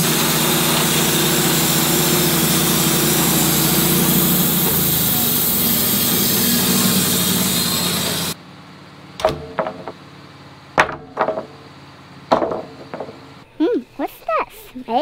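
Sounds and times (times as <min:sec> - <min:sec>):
bandsaw cutting log: 0:00.0 - 0:08.4
wooden boards knocked onto stack: 0:09.2 - 0:10.0, 0:10.8 - 0:11.6, 0:12.3 - 0:13.2.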